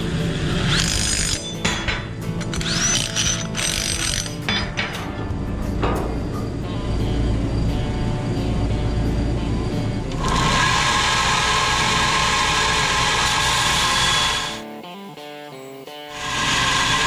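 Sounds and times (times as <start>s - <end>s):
belt grinder grinding steel: 0.0s - 4.6s, 10.1s - 14.6s, 16.1s - 17.0s
low hum: 4.8s - 10.5s.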